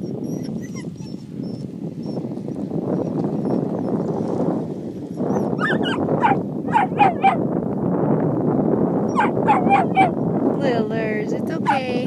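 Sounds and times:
dog yipping and whining: 0.0 - 2.2, 5.2 - 7.4, 9.1 - 10.2
wind on microphone: 0.0 - 12.0.

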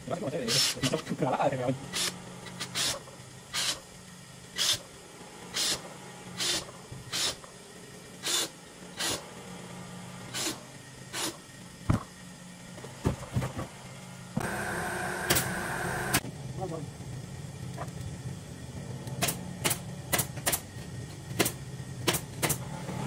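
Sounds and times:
cordless drill bursts: 4.6 - 4.8, 8.2 - 9.2.

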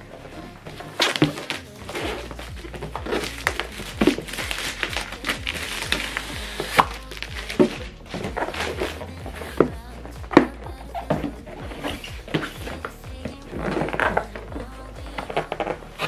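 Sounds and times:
background music: 0.0 - 16.0
plastic wrap crinkling: 1.0 - 9.2.

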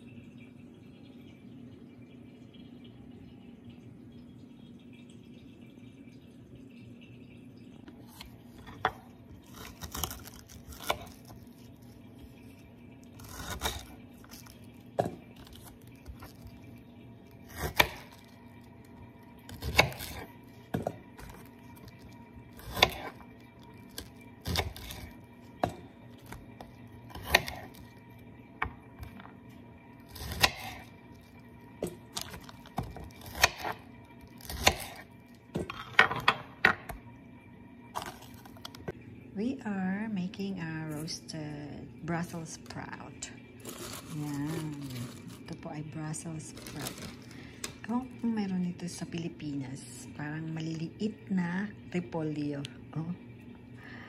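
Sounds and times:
knife cutting on cutting board: 22.6 - 23.2, 27.2 - 27.8.

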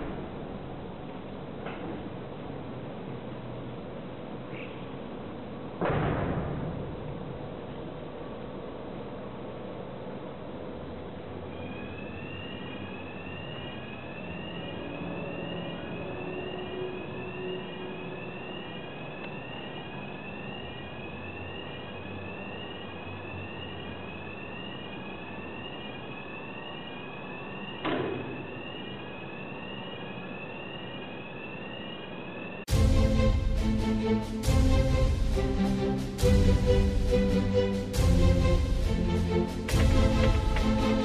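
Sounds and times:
cableway mechanical running noise: 0.0 - 41.0
high rising chirp: 11.4 - 41.0.

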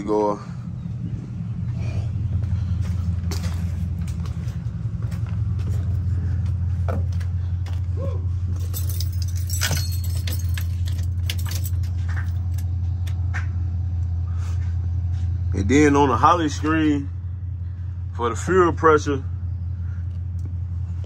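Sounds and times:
low mechanical hum: 0.0 - 21.0
metallic clicks and jingles: 8.5 - 13.2.

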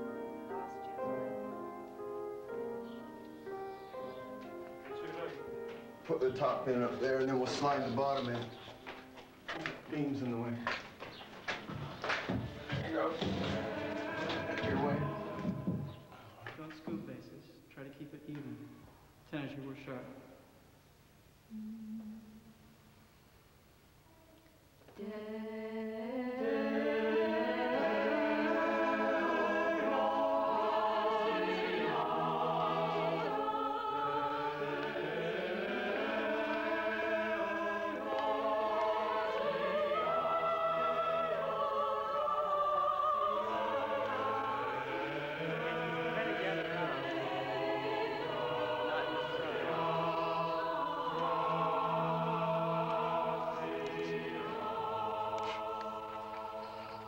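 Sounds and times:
mixed choir singing chords: 0.0 - 8.3, 12.2 - 16.5, 25.0 - 57.0.

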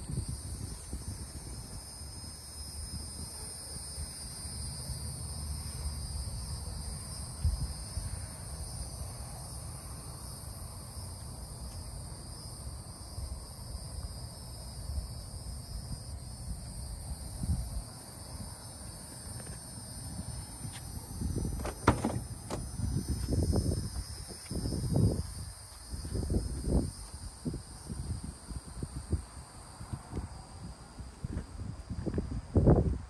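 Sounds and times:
crickets chirping: 0.0 - 33.0
low rumble of wind: 0.0 - 33.0
soft thumps: 21.6 - 22.7.

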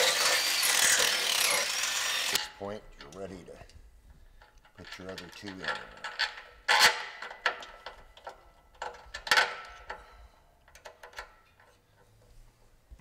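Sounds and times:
metal hardware clinking and clattering: 4.3 - 12.2.

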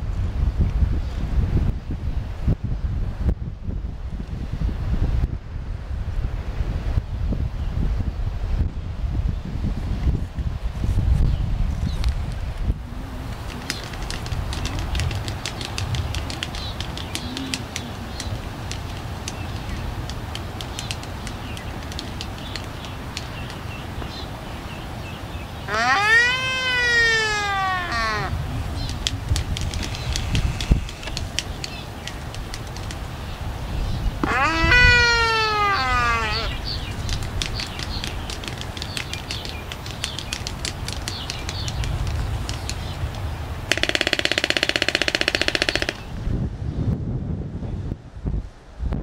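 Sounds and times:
albatross bill clacks: 12.0 - 24.2, 25.7 - 33.3, 34.2 - 46.1
albatross long rising call: 12.8 - 19.4, 25.6 - 31.8, 34.2 - 37.8.

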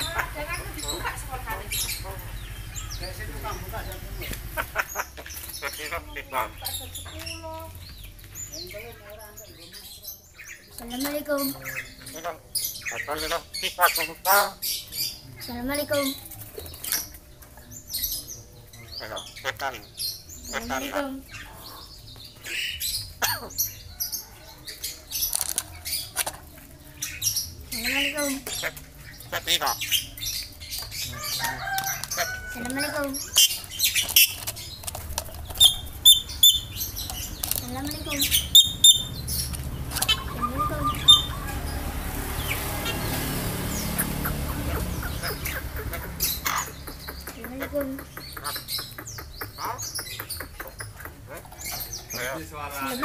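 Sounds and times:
motorcycle engine humming: 0.0 - 7.2, 27.5 - 49.6
bird chirping and calling: 0.0 - 53.0
bird chirps whistles and clicks: 46.6 - 51.2.

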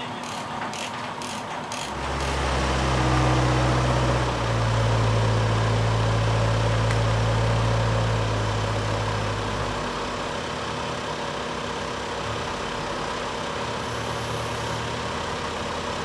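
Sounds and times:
diesel engine running: 0.0 - 16.0
ratchet strap clicking: 0.2 - 2.3.

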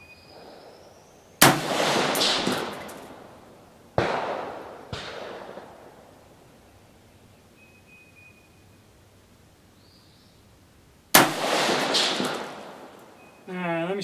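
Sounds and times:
rifle shots ringing out: 0.3 - 6.7, 11.1 - 13.4
faint bang: 1.4 - 3.4.

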